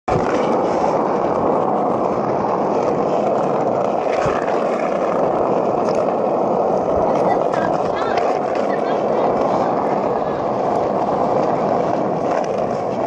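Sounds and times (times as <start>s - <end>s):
skateboard wheels rolling on asphalt: 0.1s - 13.0s.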